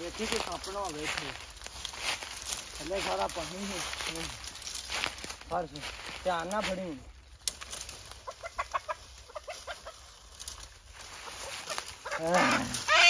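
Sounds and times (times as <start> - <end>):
chicken clucking: 8.2 - 10.2, 11.2 - 13.0.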